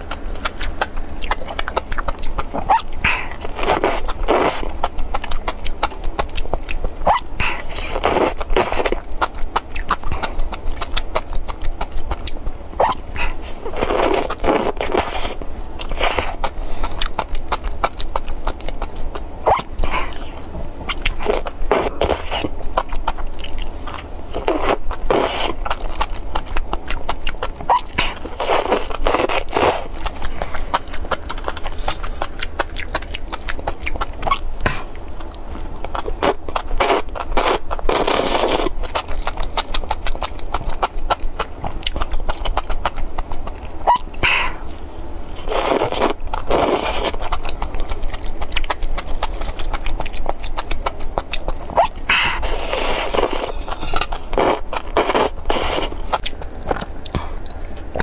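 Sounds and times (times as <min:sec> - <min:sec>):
chewing clicks: 0:00.0 - 0:13.0, 0:13.8 - 0:44.2, 0:45.4 - 0:58.0
slurping: 0:12.8 - 0:17.2, 0:27.7 - 0:35.0, 0:45.4 - 0:47.4, 0:51.8 - 0:56.3.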